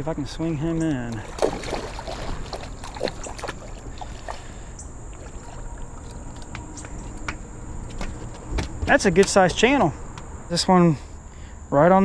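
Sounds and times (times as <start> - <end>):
fish splashing at water surface: 1.1 - 7.3.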